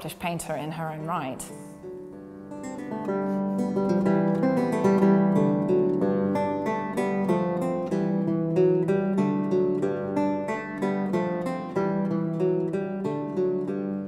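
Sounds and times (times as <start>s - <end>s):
bass lute strumming chords: 1.5s - 14.0s.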